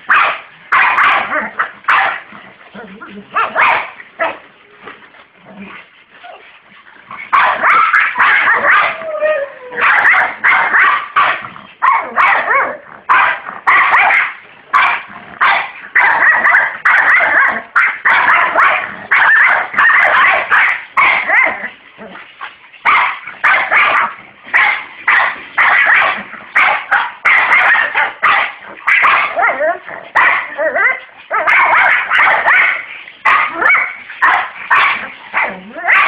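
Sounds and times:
dog barking: 0:00.1 - 0:02.2, 0:03.4 - 0:04.4, 0:07.3 - 0:09.0, 0:09.8 - 0:21.6, 0:22.8 - 0:29.6, 0:30.2 - 0:36.0
dog whining: 0:08.5 - 0:09.9.

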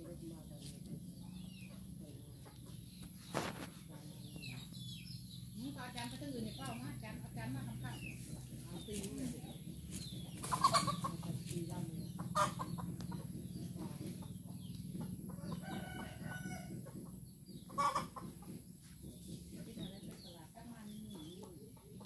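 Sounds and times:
chickens clucking: 0:00.0 - 0:22.0
rooster crowing: 0:15.5 - 0:16.7.

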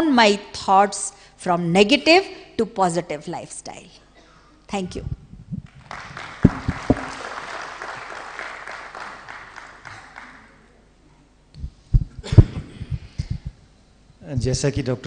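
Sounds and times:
low thumps: 0:05.0 - 0:07.1, 0:11.6 - 0:13.6
audience applauding: 0:05.7 - 0:10.8.

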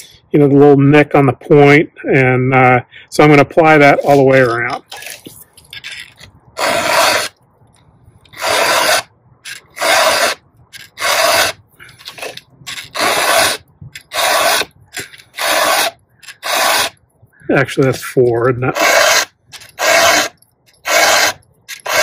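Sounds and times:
file rasping on chainsaw chain: 0:06.6 - 0:07.3, 0:08.3 - 0:17.0, 0:18.7 - 0:22.0.

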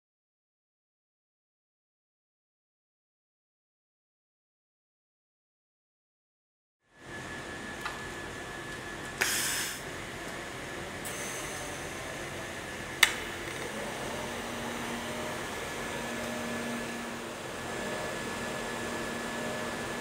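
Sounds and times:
short hiss: 0:09.2 - 0:09.8
welding arc hissing: 0:09.2 - 0:10.0.

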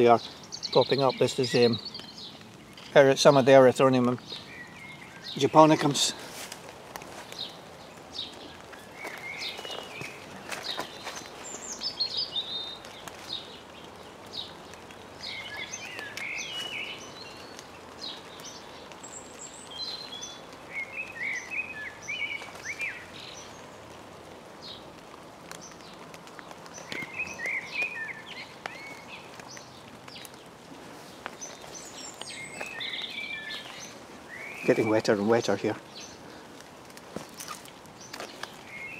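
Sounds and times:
blackbird singing: 0:00.0 - 0:06.2, 0:07.3 - 0:23.8, 0:25.6 - 0:30.4, 0:31.3 - 0:36.4, 0:37.4 - 0:38.9
small drip clicks: 0:23.4 - 0:30.5, 0:36.5 - 0:38.7.

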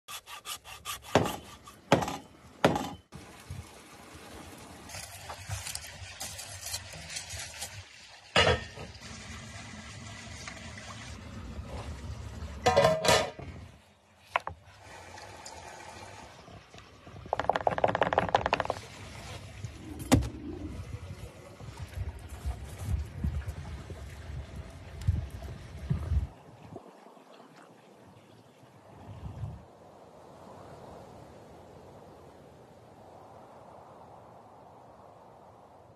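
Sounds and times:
hand saw rasping through bone: 0:00.1 - 0:01.9
knocks and clatter: 0:17.3 - 0:18.8.

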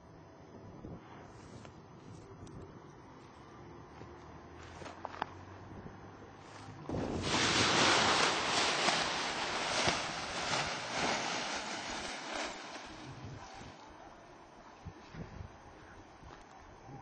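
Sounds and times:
wind gusting across microphone: 0:06.6 - 0:14.0.

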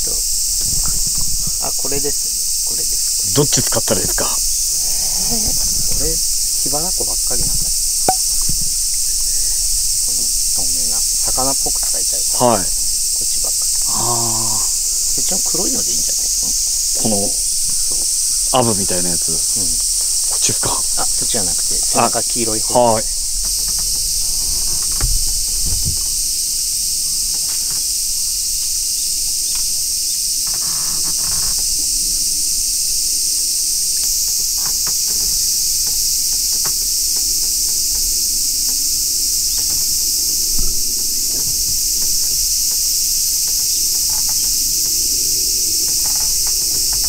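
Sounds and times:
cicadas chorus: 0:00.0 - 0:47.0
faint clicks and knocks: 0:34.0 - 0:47.0.

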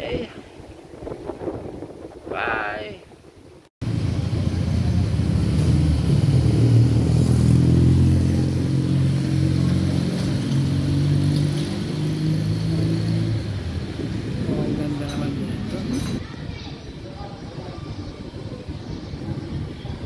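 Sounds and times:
engine running: 0:03.8 - 0:16.0.

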